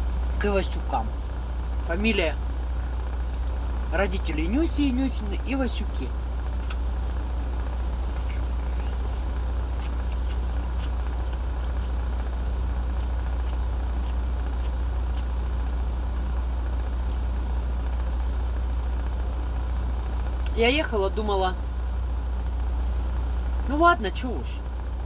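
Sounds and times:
diesel engine idling: 0:00.0 - 0:25.0
chewing and mouth clicks: 0:02.6 - 0:03.6, 0:06.4 - 0:07.0, 0:07.8 - 0:16.0, 0:16.7 - 0:18.3.

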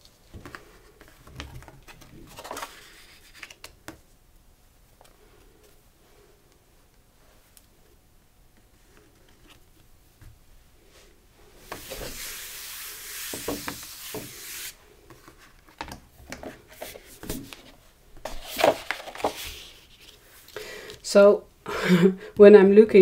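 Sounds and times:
palm rubbing paper: 0:11.7 - 0:14.8.

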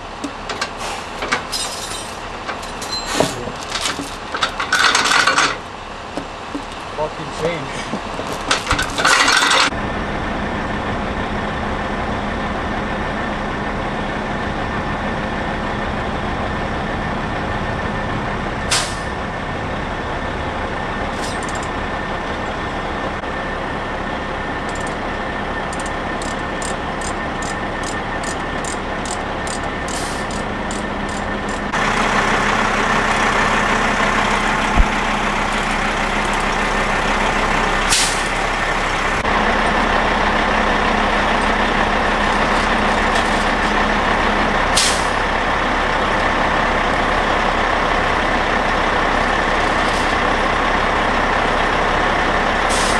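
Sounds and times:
heavy truck engines running: 0:00.0 - 0:52.9
chain rattle: 0:00.2 - 0:05.6, 0:06.2 - 0:09.7, 0:21.1 - 0:21.7, 0:35.5 - 0:36.6, 0:41.2 - 0:43.9, 0:46.8 - 0:50.2.

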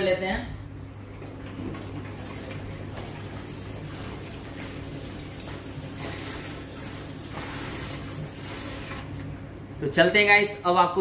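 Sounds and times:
tap water running into sink: 0:01.7 - 0:09.3.

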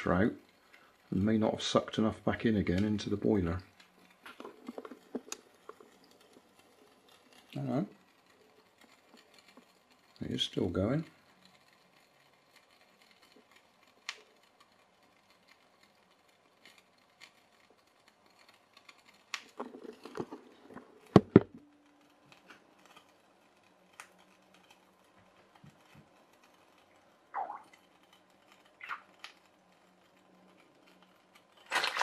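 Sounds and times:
knocks and clatters: 0:19.5 - 0:21.6.

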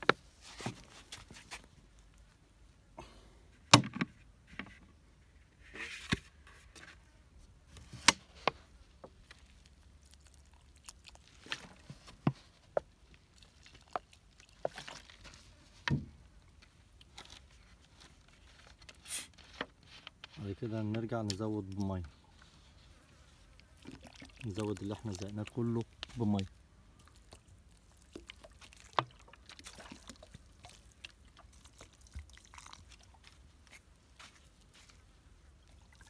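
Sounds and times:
plastic bottle clicks and knocks: 0:03.7 - 0:04.7.

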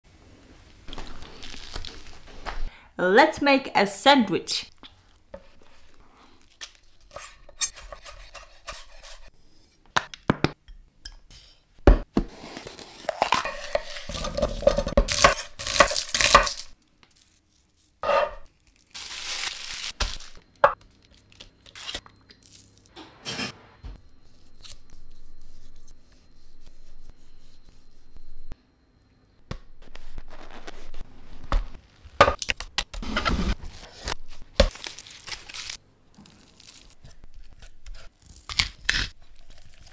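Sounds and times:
cling film crinkling: 0:00.9 - 0:02.6, 0:15.9 - 0:22.8, 0:34.7 - 0:37.1
pan and utensils on chopping board: 0:12.2 - 0:16.7, 0:18.0 - 0:18.5, 0:22.9 - 0:24.0.

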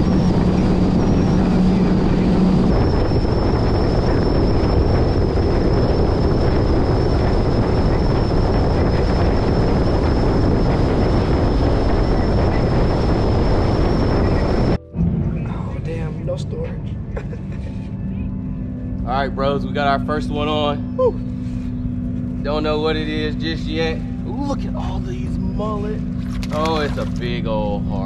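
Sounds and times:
wind buffeting microphone: 0:00.0 - 0:17.7
motorboat engine drone: 0:00.0 - 0:28.0.

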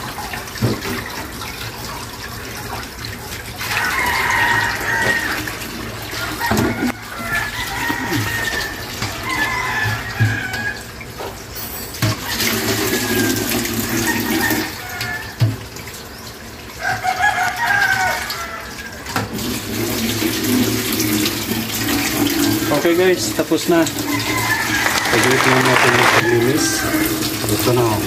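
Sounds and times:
tap water running into sink: 0:00.0 - 0:11.4, 0:12.0 - 0:16.0, 0:19.1 - 0:28.0
roosters crowing: 0:03.7 - 0:10.9, 0:12.7 - 0:15.4, 0:16.8 - 0:18.9, 0:24.0 - 0:27.3.

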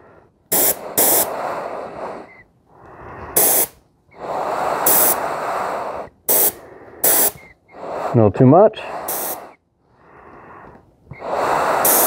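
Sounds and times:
paint spray gun hissing: 0:00.5 - 0:01.4, 0:03.4 - 0:03.8, 0:04.8 - 0:05.2, 0:06.3 - 0:07.5, 0:09.1 - 0:09.6, 0:11.7 - 0:12.0.

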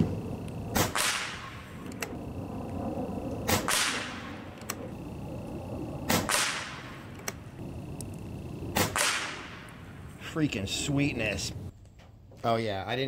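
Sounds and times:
air rifle shots: 0:00.7 - 0:02.1, 0:03.4 - 0:04.8, 0:06.0 - 0:07.4, 0:08.7 - 0:09.8.

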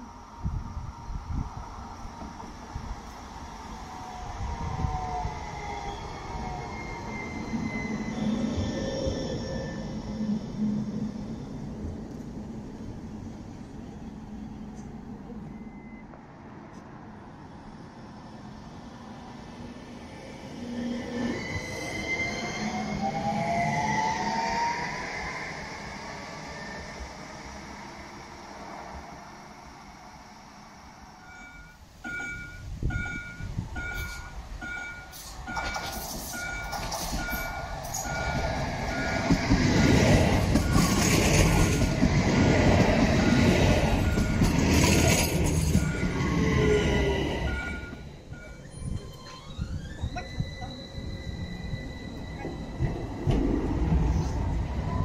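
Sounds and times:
tram drive whine: 0:00.0 - 0:55.0
wheels squealing on rails: 0:04.1 - 0:11.8, 0:19.4 - 0:55.0.

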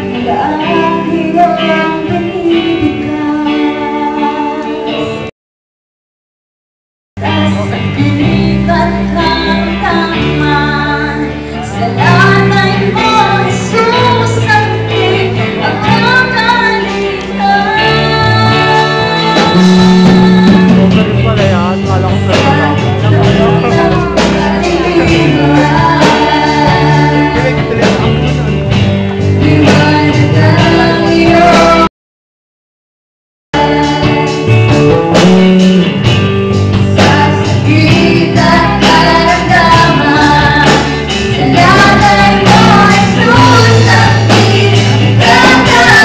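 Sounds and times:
instrumental accompaniment with bass: 0:00.0 - 0:05.3, 0:07.2 - 0:31.9, 0:33.6 - 0:46.0
group singing worship song: 0:08.8 - 0:21.0, 0:22.3 - 0:28.2, 0:29.4 - 0:31.9, 0:36.9 - 0:46.0.

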